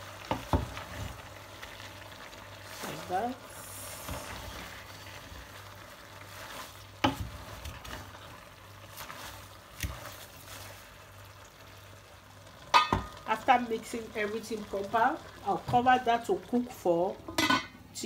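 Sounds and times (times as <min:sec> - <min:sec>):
rustle of leaves being stirred: 0:00.0 - 0:16.9
spoon knocking against pot: 0:12.7 - 0:13.1.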